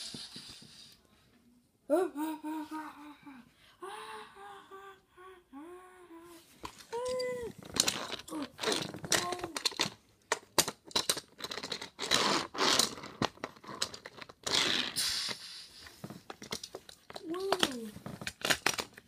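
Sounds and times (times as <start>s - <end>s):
person humming: 1.9s - 7.6s
plastic toy trains clicking: 7.0s - 19.0s.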